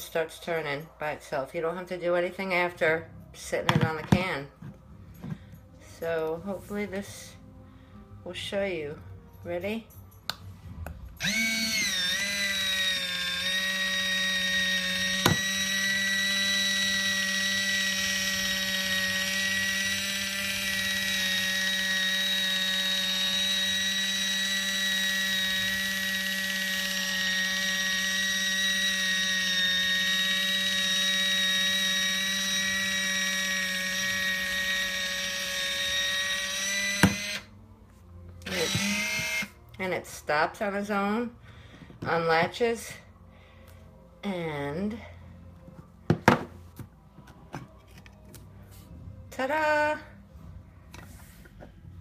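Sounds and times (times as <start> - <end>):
can opener motor whine: 11.2 - 37.5, 38.4 - 39.6.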